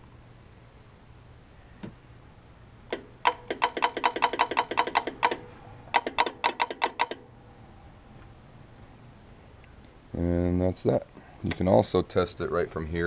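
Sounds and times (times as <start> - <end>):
compressor clutch clicking: 2.9 - 7.2.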